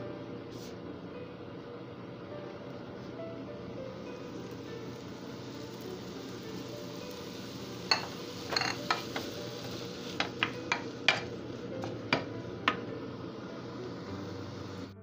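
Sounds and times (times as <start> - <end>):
utensil scraping a frying pan: 7.8 - 11.9.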